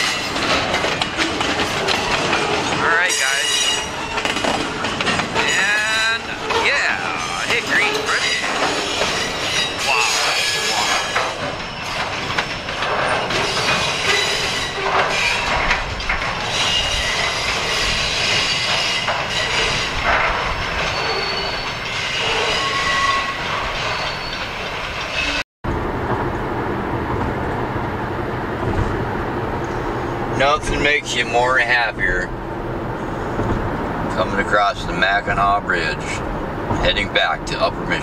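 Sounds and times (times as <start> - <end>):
train wheels clattering on rails: 0.0 - 25.4, 28.5 - 38.0
train wheels squealing: 3.1 - 4.5, 6.5 - 15.7, 16.5 - 20.0, 20.8 - 25.4
road noise inside a car: 25.7 - 38.0.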